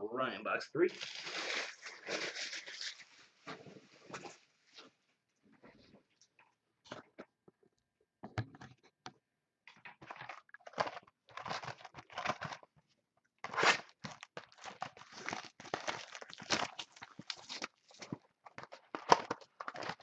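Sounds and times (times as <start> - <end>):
plastic wrap tearing and crinkling: 0.9 - 3.5, 10.0 - 12.7, 13.4 - 20.0.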